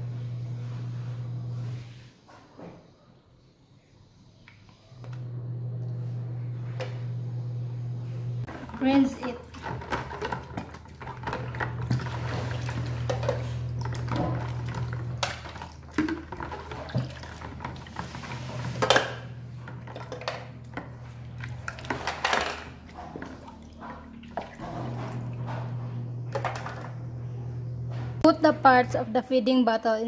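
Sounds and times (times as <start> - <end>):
low hum: 5.0 - 8.5, 23.5 - 28.9
water splashing in basin: 8.5 - 25.5.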